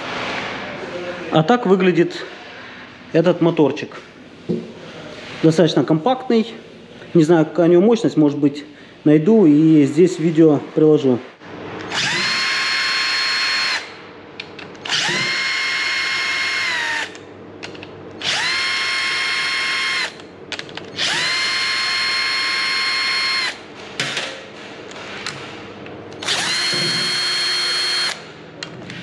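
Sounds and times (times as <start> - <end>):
cordless drill motor whine: 11.9 - 13.9, 14.8 - 17.2, 18.2 - 20.2, 21.0 - 23.6, 26.2 - 28.2.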